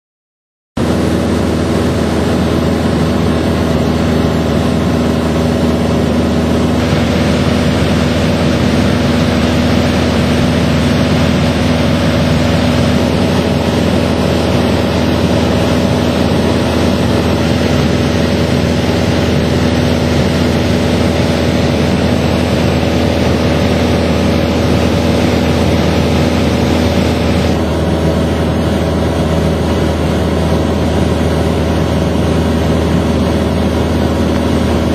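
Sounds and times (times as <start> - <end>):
jet engine drone in cabin: 0.8 - 34.9
steady tones: 6.6 - 27.6.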